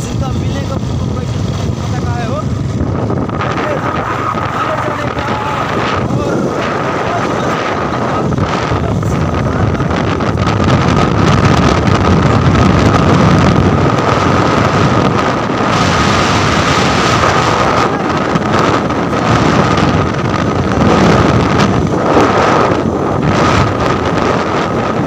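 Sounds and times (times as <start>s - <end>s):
motorcycle engine running: 0.0s - 25.0s
wind buffeting microphone: 0.0s - 25.0s.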